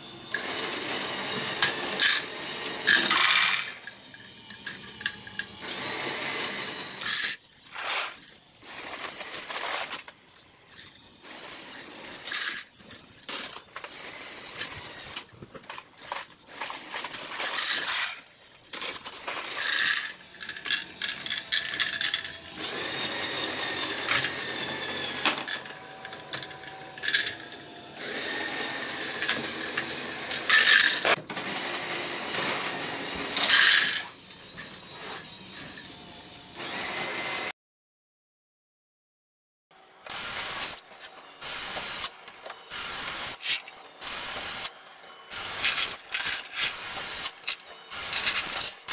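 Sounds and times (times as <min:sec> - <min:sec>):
electric motor whirring: 0:00.0 - 0:37.5, 0:40.0 - 0:48.9
plastic gears clicking: 0:29.1 - 0:31.3
plastic balls rattling: 0:30.5 - 0:31.2.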